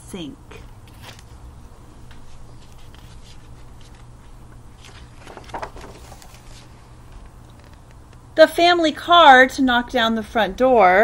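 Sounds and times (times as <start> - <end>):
steady low hum: 0.0 - 11.0
book pages rustling: 0.8 - 1.3, 2.0 - 8.0.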